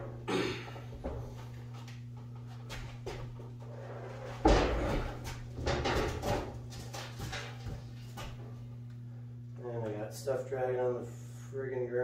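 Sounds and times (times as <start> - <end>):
steady low hum: 0.0 - 12.0
clattering and knocking: 4.2 - 8.3.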